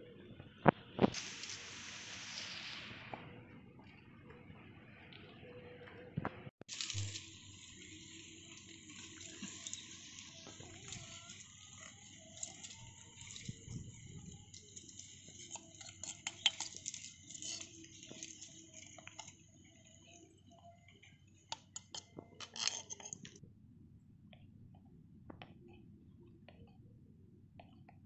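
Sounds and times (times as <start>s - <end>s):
metal spoon scraping clay pots: 7.5s - 20.0s, 21.5s - 23.4s.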